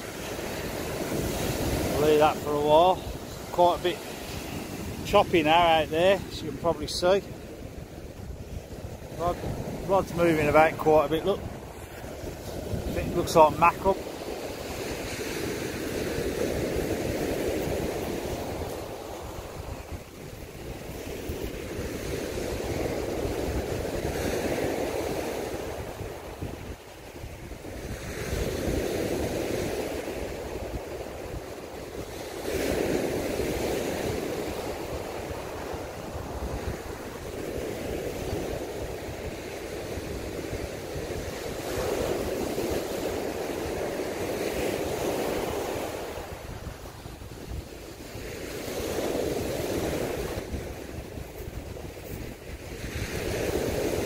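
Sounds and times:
waves breaking on beach: 0.0s - 54.0s.

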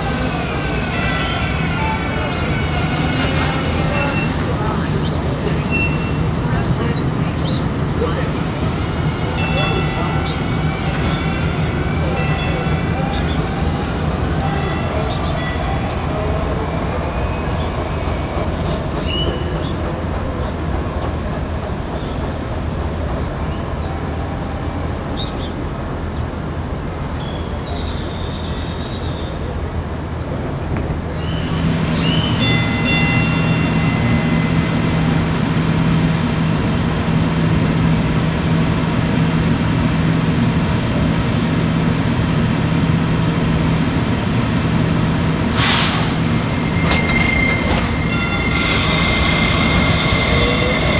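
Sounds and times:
train droning on track: 0.0s - 50.9s.

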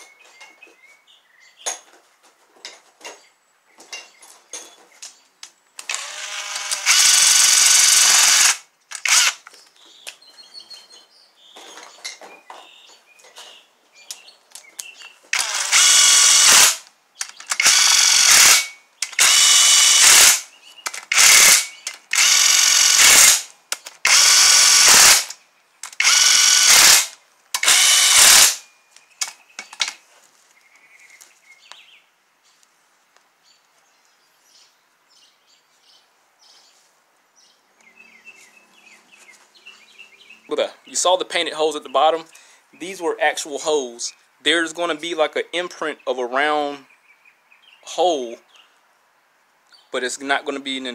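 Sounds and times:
power drill motor whine: 5.9s - 9.4s, 15.4s - 16.8s, 17.6s - 20.4s, 21.1s - 23.4s, 24.1s - 25.3s, 26.0s - 28.6s.

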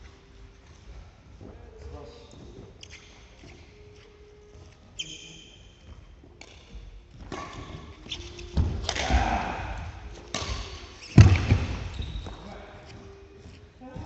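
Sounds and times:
racket hitting shuttlecock: 7.2s - 11.9s
footsteps on wooden floor: 11.2s - 14.0s.

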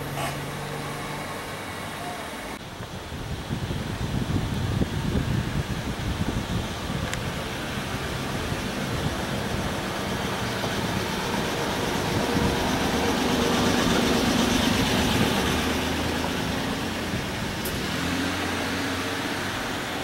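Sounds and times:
street noise: 0.0s - 20.0s
vehicle engine running: 6.4s - 20.0s.

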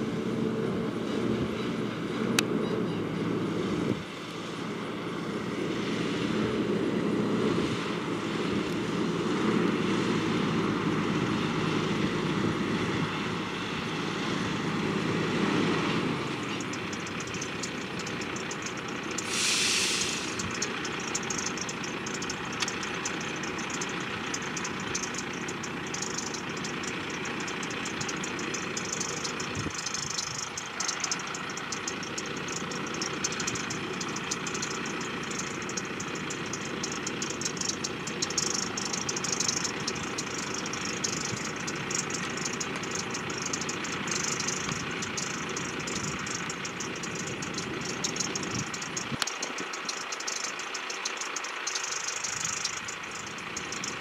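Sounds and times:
combine harvester engine droning: 0.0s - 54.0s
brief hiss: 19.2s - 20.4s.

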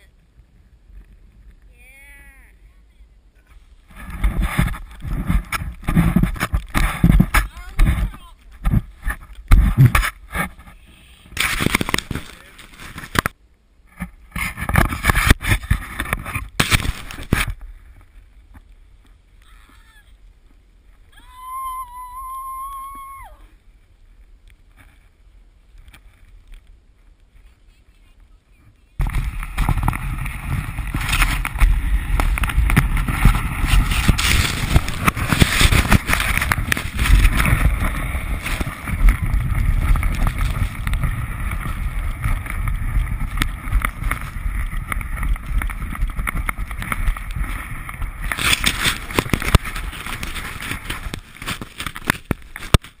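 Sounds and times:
wind buffeting microphone: 28.5s - 53.0s
snowboard scraping on snow: 29.0s - 51.6s.

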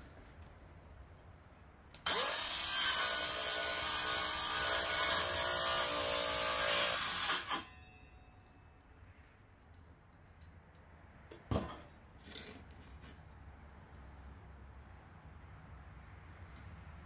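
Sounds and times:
circular saw cutting wood: 2.0s - 7.9s.

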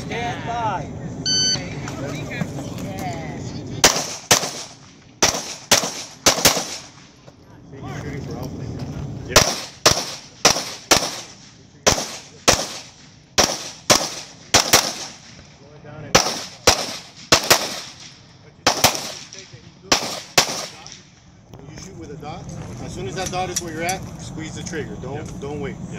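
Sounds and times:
pistol shots with echo: 3.8s - 7.1s, 9.3s - 15.4s, 16.1s - 21.1s.

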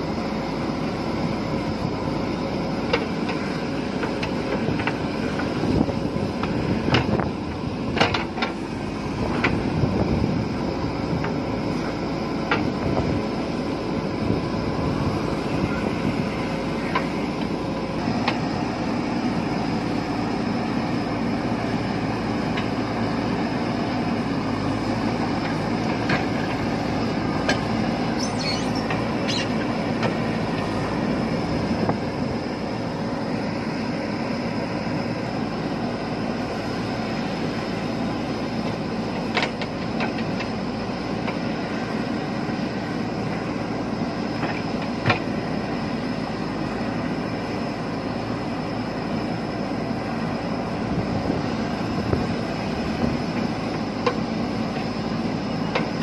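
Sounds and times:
diesel engine running under load: 0.0s - 56.0s
digger bucket clanking: 25.4s - 30.8s.

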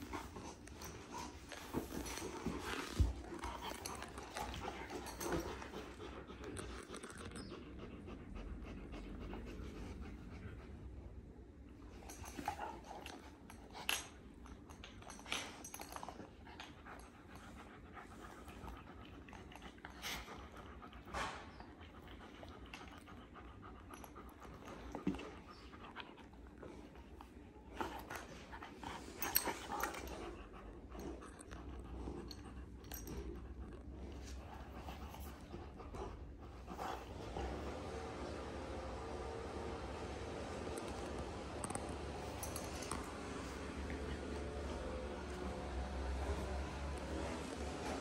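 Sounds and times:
dogs panting: 0.0s - 48.0s.

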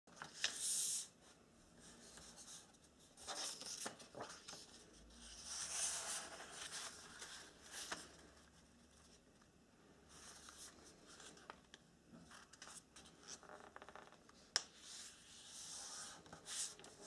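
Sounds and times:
paper rustling on a table: 0.1s - 1.1s.

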